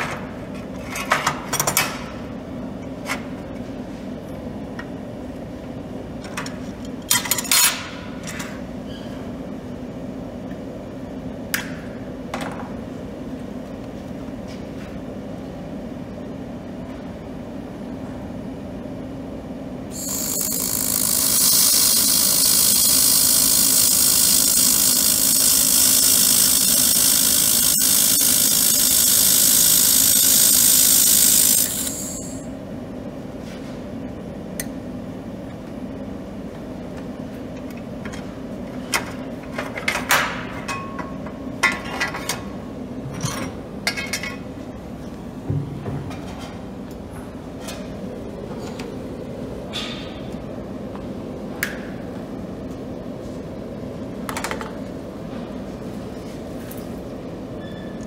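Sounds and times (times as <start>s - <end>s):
low machine hum: 7.9s - 39.6s
laser welder hissing: 19.9s - 32.5s.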